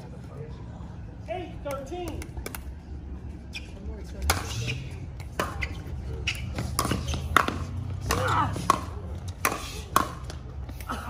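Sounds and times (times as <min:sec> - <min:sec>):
faint spectators' voices: 0:00.0 - 0:11.0
ball bouncing on hard court: 0:05.2 - 0:10.5.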